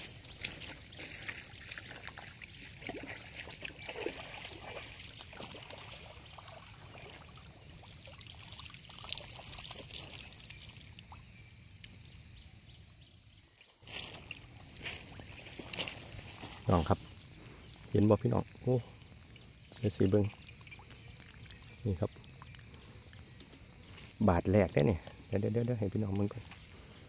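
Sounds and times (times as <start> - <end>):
net splashing in pond water: 0.0 - 11.4, 13.6 - 18.8
water dripping: 0.0 - 12.1, 13.8 - 25.2.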